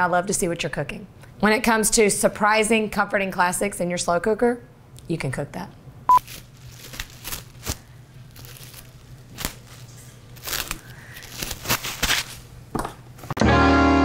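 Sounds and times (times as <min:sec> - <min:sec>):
cling wrap crinkling: 0:06.1 - 0:12.6.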